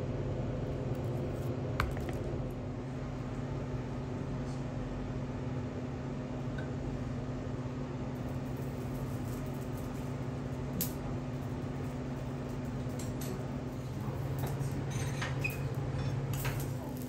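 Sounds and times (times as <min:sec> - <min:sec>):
kitchen machinery humming: 0:00.0 - 0:17.0.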